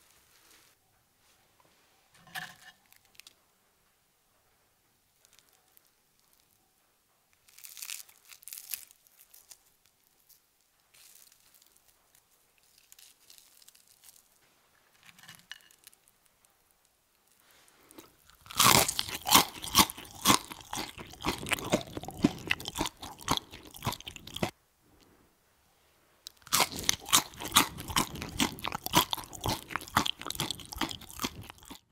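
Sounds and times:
soft rustles of handling food: 0.0 - 31.8
crisp food crunching: 7.4 - 14.4, 17.8 - 24.5, 26.3 - 31.9.

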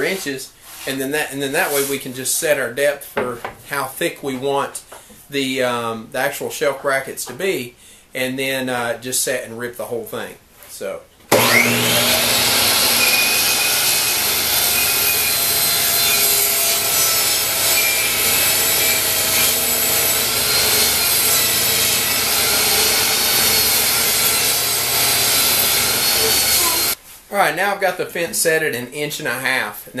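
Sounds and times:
saw ripping wooden board: 11.3 - 27.0
table saw motor running: 11.3 - 27.0.

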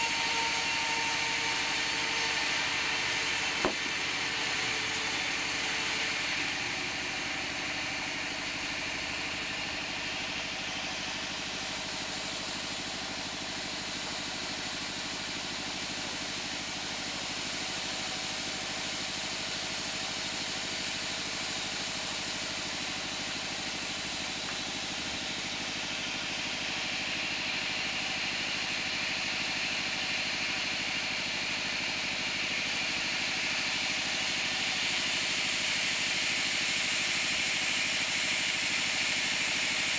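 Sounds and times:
band saw machine drone: 0.0 - 10.3.

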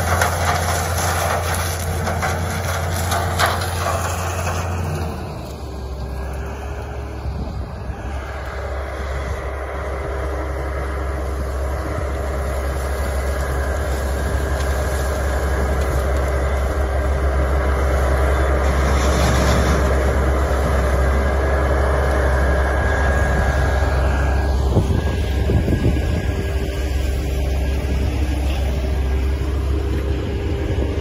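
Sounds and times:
harvester engine rumble and whine: 0.0 - 31.0.

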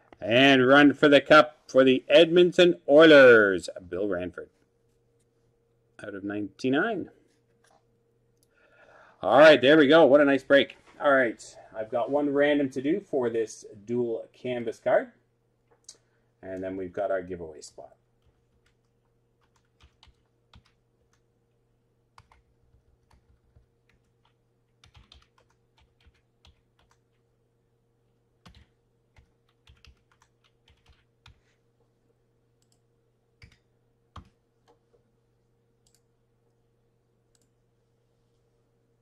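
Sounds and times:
faint electrical hum: 0.0 - 39.0
computer keyboard typing: 18.2 - 21.2, 22.2 - 27.1, 28.4 - 31.4, 33.4 - 33.6.

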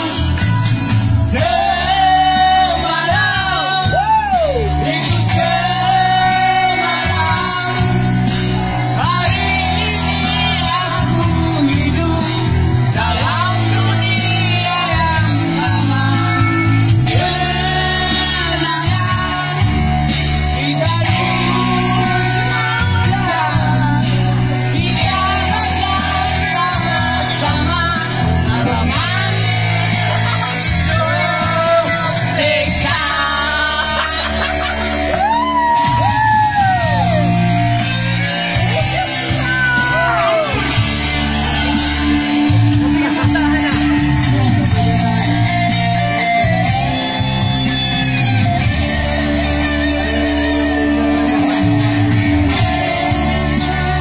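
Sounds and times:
man singing into a microphone: 0.0 - 40.9, 52.5 - 54.0
amplified backing music: 0.0 - 54.0.

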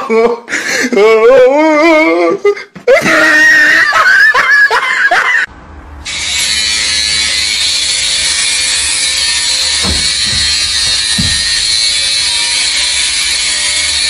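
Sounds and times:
high-pitched laughing and squealing: 0.0 - 5.5
electric hair clipper buzzing: 6.1 - 14.0.

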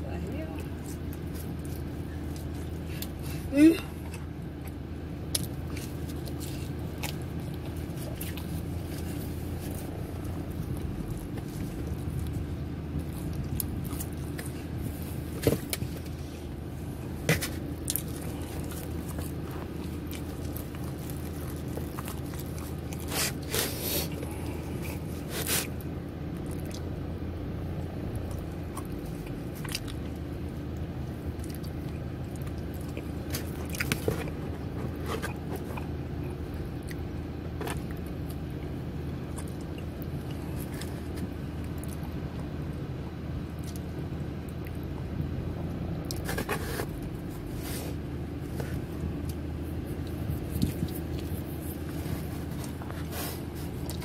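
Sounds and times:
low hum: 0.0 - 54.0
clicks and scrapes from eating: 31.4 - 37.0, 46.1 - 54.0.

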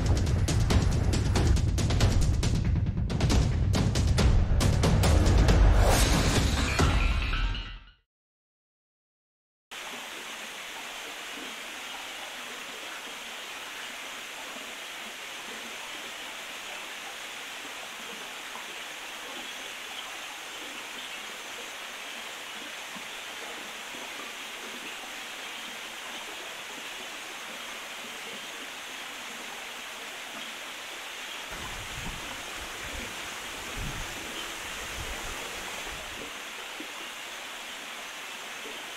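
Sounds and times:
stream flowing over cascades: 9.7 - 38.9.

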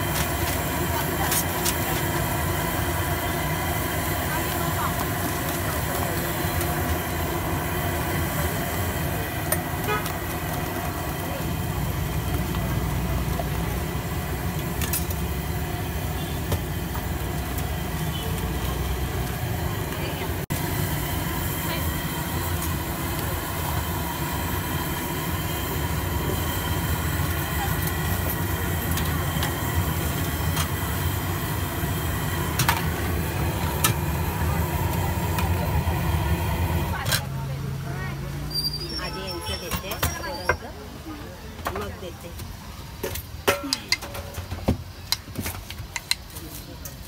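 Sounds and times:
road traffic rumble: 0.0 - 47.0.

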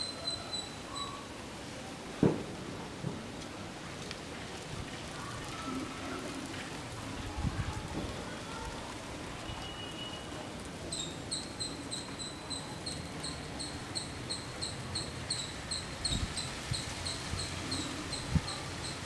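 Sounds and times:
laundry rustling in wind: 1.2 - 11.6, 15.6 - 19.0
wind gusting across microphone: 4.6 - 9.2, 15.8 - 19.0.

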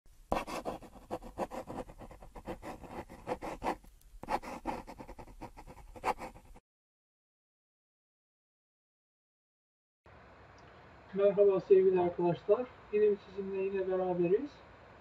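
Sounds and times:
pencil scratching on paper: 0.3 - 6.6.

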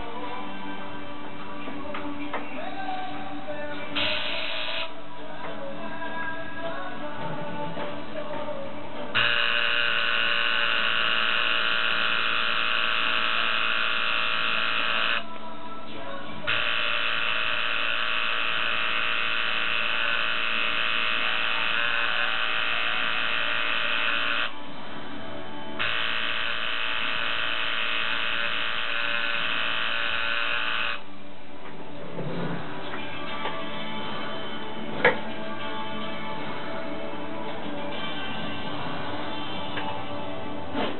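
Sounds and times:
tattoo machine buzzing: 4.0 - 4.9, 9.1 - 15.2, 16.5 - 24.6, 25.8 - 31.1.

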